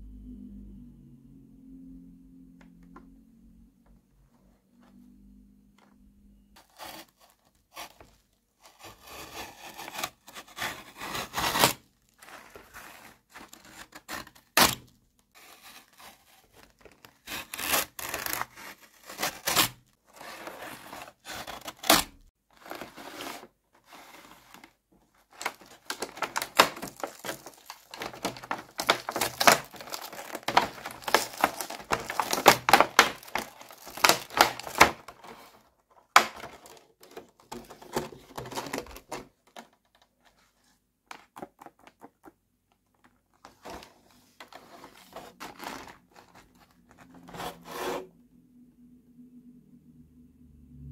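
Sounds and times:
utility knife cutting cardboard: 6.6 - 39.2, 47.1 - 48.1
card and plastic crinkling: 9.6 - 40.0.

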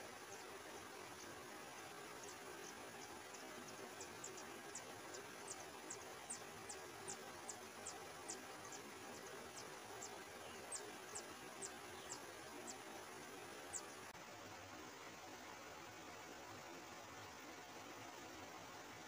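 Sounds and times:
faint hiss: 0.0 - 19.0
nestlings begging calls: 2.2 - 14.0.

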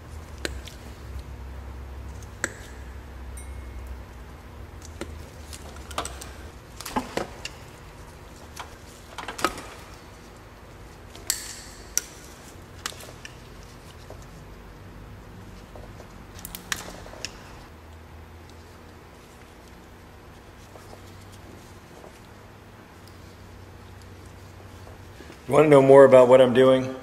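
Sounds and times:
wire cutters clicking and snipping: 4.8 - 7.8, 11.1 - 13.8, 16.3 - 17.6.

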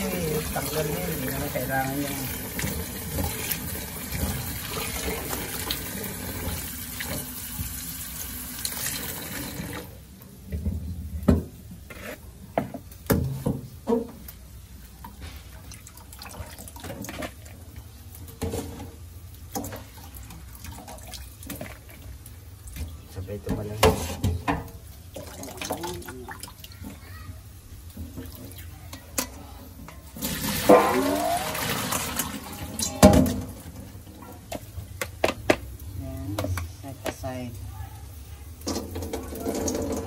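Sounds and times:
hands washing food in a bowl: 0.0 - 7.9, 11.8 - 37.6
tap water running into sink: 0.0 - 9.9, 30.2 - 35.7, 38.6 - 40.0.

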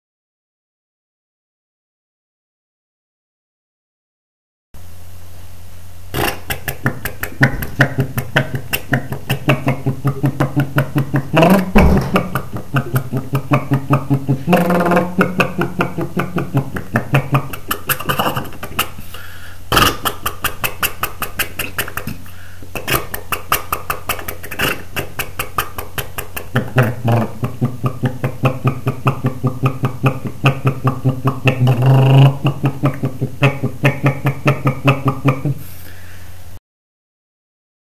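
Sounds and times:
person imitating motorcycle engine: 6.1 - 35.8.

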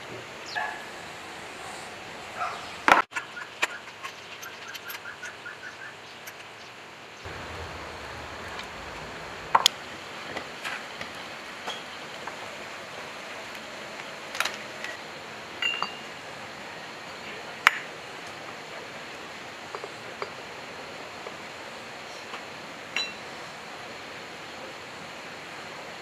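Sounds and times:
metal clinks of wrench and gears: 3.9 - 5.4.

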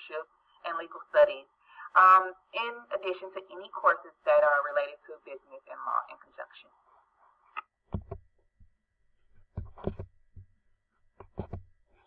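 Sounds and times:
computer mouse clicking: 9.5 - 10.1, 11.2 - 11.7.

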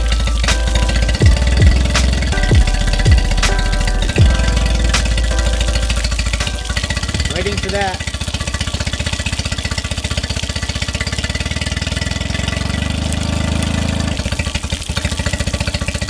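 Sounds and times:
outboard motor running: 4.1 - 16.0.

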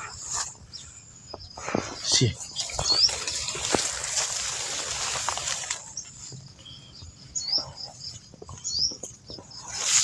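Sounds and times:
bird chirping: 0.0 - 4.1, 4.8 - 10.0
rustling on microphone: 1.6 - 6.4.

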